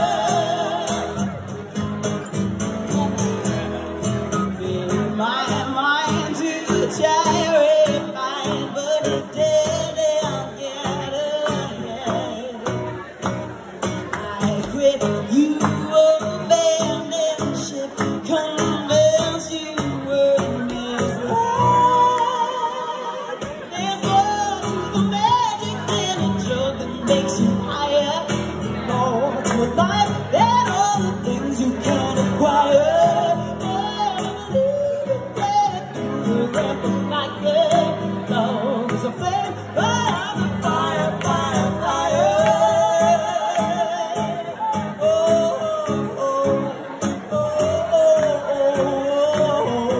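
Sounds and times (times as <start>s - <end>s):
acoustic guitar strumming: 0.0s - 49.9s
man singing along: 0.0s - 49.9s
woman singing: 14.2s - 28.3s.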